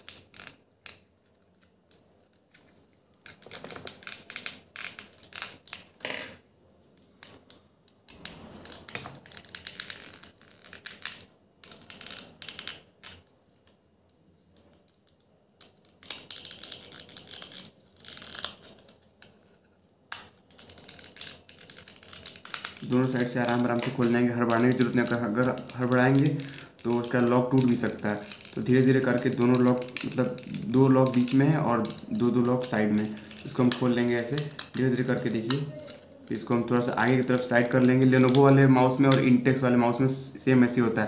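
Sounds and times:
plastic clicks and scraping: 14.5 - 39.3.

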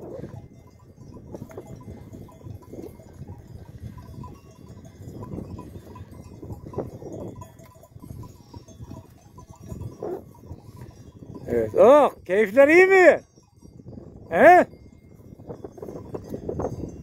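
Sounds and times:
livestock bells clinking: 0.0 - 17.0
wind rumble on microphone: 0.0 - 17.0.

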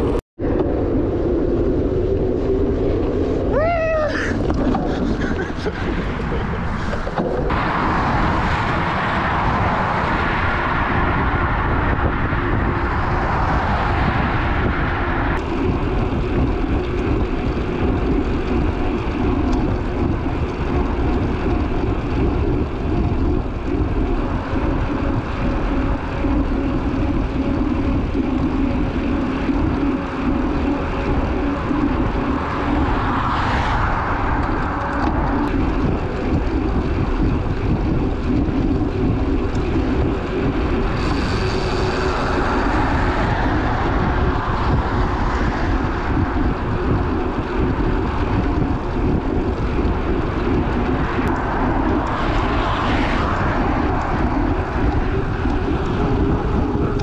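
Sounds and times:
engine drone: 0.0 - 57.0
rushing air noise: 0.0 - 57.0.

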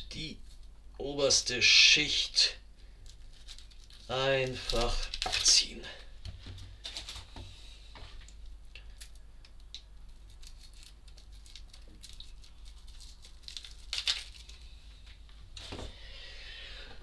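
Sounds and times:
onion skin crackling and tearing: 2.9 - 7.4, 8.2 - 15.2
onion skin rustle: 2.9 - 15.8.

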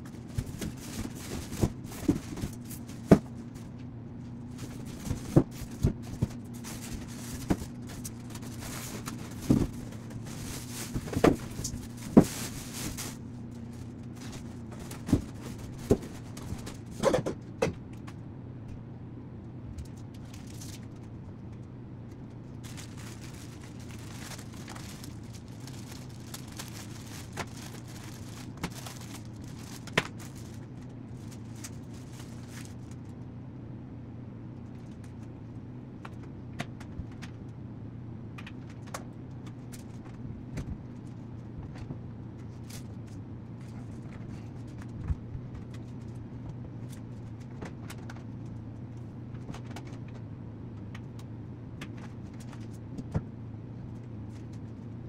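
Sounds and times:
low room hum: 0.0 - 55.0
plastic packaging rustling: 0.1 - 3.6, 4.4 - 17.0, 22.6 - 33.0.

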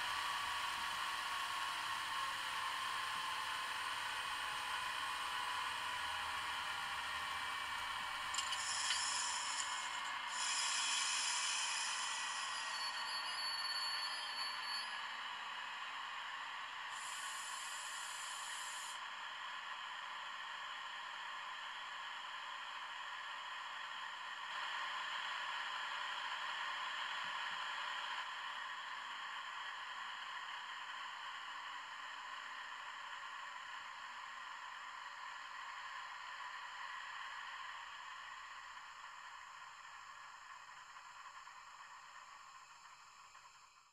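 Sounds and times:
diesel engine sound from small speaker: 0.0 - 43.9
air hiss bursts: 10.3 - 12.4.

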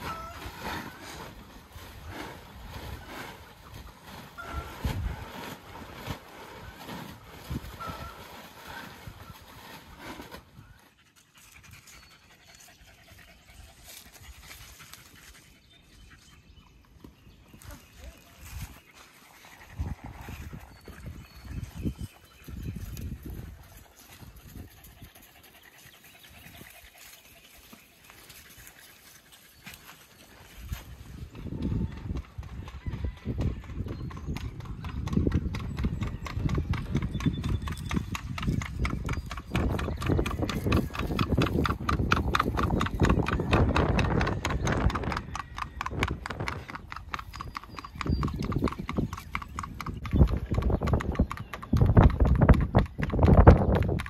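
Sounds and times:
animal panting: 10.8 - 16.8, 23.3 - 30.3
hoofbeats on asphalt: 31.3 - 54.0.

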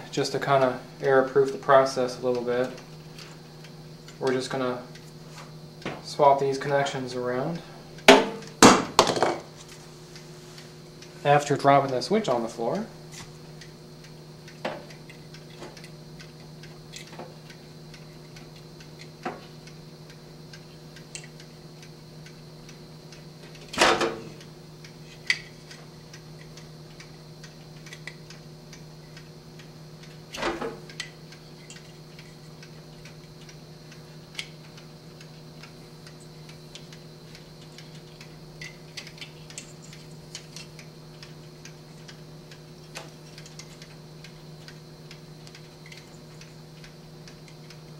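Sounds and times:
wires and terminals clicking: 13.1 - 47.9
mechanical timer ticking: 13.4 - 23.7, 24.4 - 47.9.

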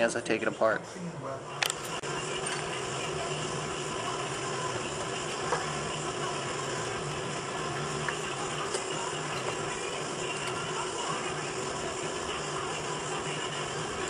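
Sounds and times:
steady mechanical hum: 0.0 - 14.0.

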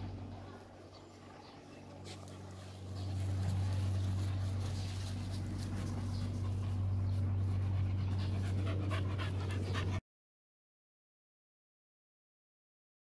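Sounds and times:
steady low hum: 0.0 - 10.0
puppy panting: 2.1 - 10.0.

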